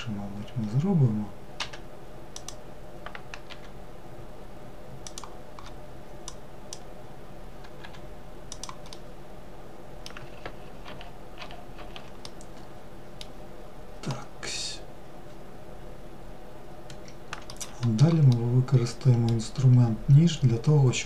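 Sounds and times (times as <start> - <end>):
low electrical hum: 0.0 - 21.0
keyboard and mouse clicking: 1.6 - 3.7, 5.0 - 6.9, 7.6 - 9.0, 10.0 - 13.3, 16.9 - 18.5, 19.1 - 19.9.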